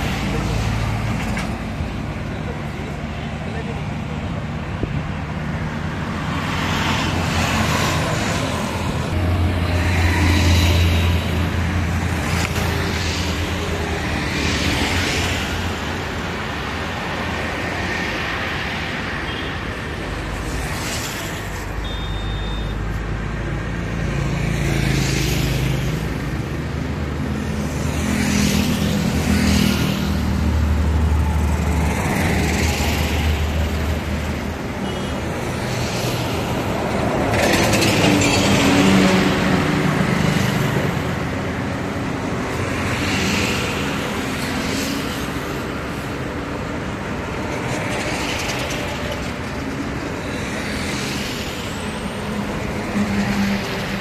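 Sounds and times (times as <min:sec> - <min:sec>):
vehicles passing: 0:00.0 - 0:54.0
brief high tone: 0:21.8 - 0:22.8.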